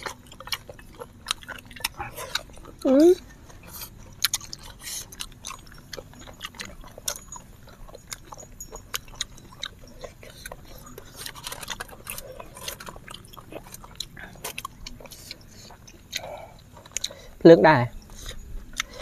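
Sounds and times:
chewing and mouth sounds: 0:00.0 - 0:19.0.

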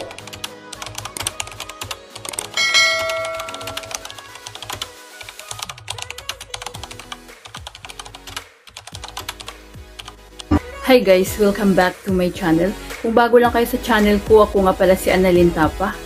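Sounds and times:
background music: 0:00.0 - 0:16.0
bell-like chime: 0:02.6 - 0:04.2
keyboard typing clicks: 0:03.0 - 0:04.8.

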